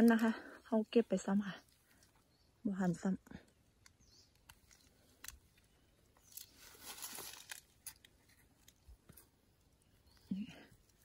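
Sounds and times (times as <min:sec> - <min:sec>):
mushrooms plucked by hand: 0:03.5 - 0:10.2.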